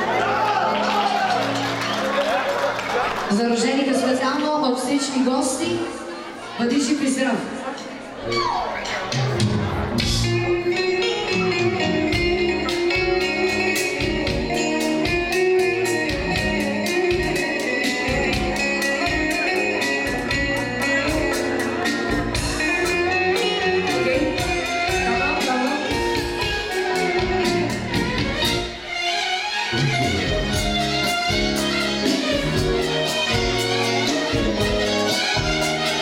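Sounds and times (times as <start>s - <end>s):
guitar lead: 8.3s - 36.0s
steady drum beat: 9.1s - 10.5s, 12.1s - 28.8s, 29.8s - 36.0s
bass: 9.1s - 28.8s, 29.7s - 36.0s.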